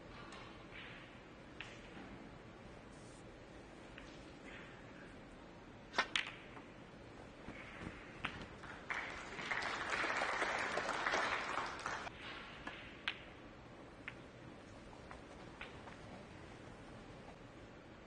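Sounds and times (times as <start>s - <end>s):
snooker balls clicking: 6.0s - 6.8s, 12.0s - 16.4s
audience applause: 8.4s - 12.1s.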